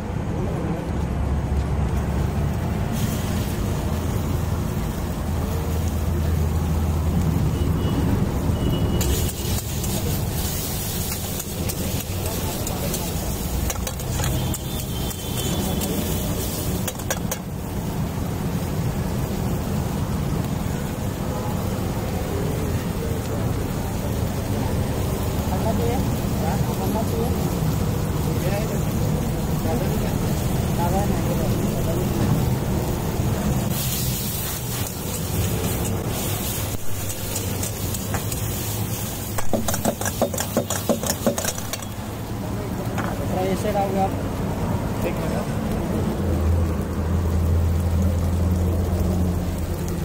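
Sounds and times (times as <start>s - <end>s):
food frying: 0.0s - 50.0s
onions and tomatoes sizzling: 0.0s - 50.0s
metal spatula clanking on pan: 13.6s - 15.2s, 16.8s - 17.5s, 39.4s - 42.0s.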